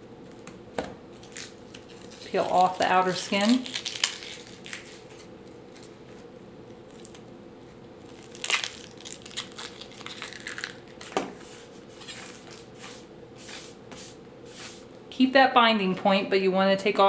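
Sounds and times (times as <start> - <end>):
onion skin crackling and tearing: 1.1 - 6.0, 6.6 - 7.3, 8.0 - 11.2.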